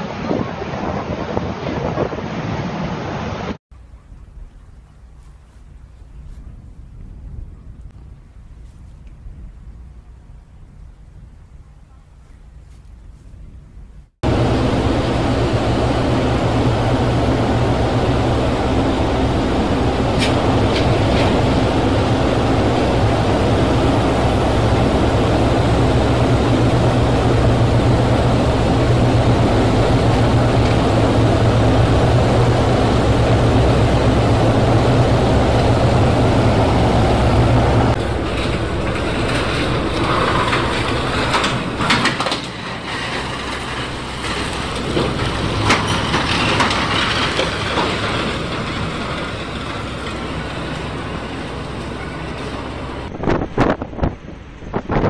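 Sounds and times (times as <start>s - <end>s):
ship diesel engine rumbling: 3.8s - 54.7s
knocks and clatter: 37.9s - 52.7s.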